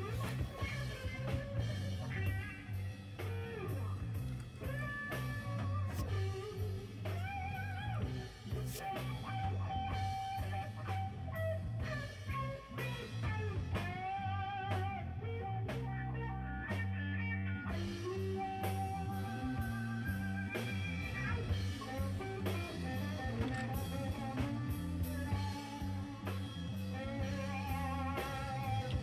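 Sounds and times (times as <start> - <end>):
blues-rock guitar music: 0.0 - 29.0.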